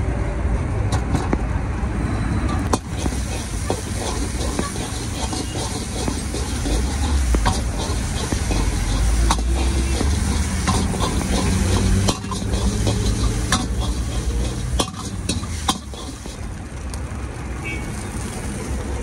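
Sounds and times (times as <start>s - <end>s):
metal ladle scraping a wok: 2.6s - 16.5s
sharp clacks: 2.6s - 17.0s
eggs sizzling in oil: 2.7s - 19.0s.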